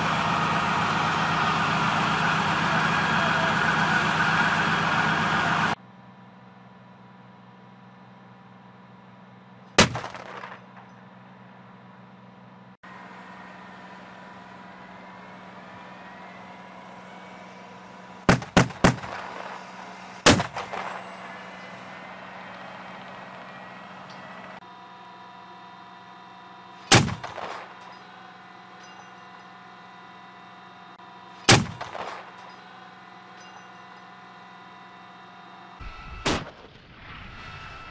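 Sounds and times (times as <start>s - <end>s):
vehicle engine idling: 0.0s - 35.8s
chain gun firing with echo: 9.8s - 10.5s, 26.9s - 27.7s, 31.5s - 32.5s.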